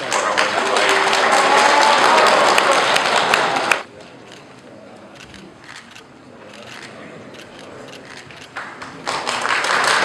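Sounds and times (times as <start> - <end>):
crowd applauding: 0.0 - 3.9, 8.5 - 10.0.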